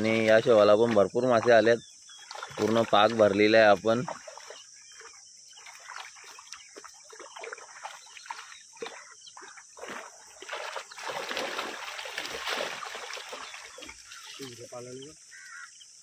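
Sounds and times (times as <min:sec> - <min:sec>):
fish splashing water: 0:00.0 - 0:14.6.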